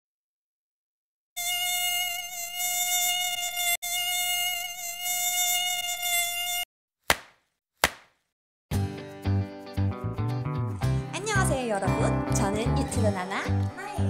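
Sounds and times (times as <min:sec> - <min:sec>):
mosquito whine: 0:01.4 - 0:06.7.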